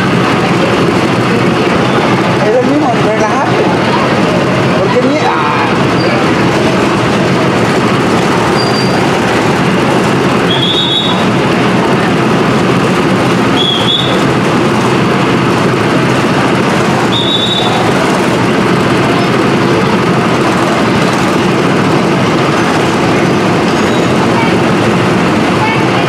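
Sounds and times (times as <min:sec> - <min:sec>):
ride car mechanical rumble: 0:00.0 - 0:26.0
high-pitched squeals: 0:05.7 - 0:25.1.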